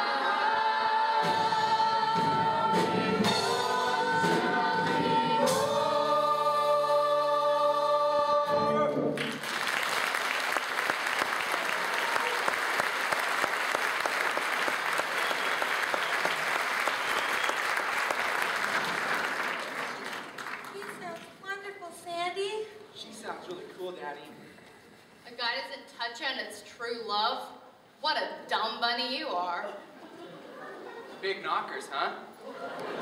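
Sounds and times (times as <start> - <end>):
audience applause: 9.2 - 21.4.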